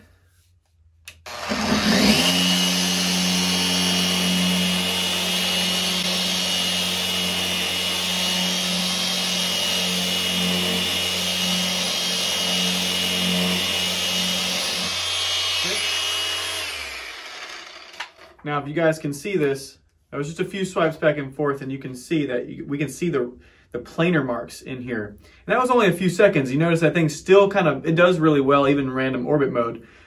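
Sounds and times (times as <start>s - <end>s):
orbital sander sanding wood: 1.2s - 18.2s.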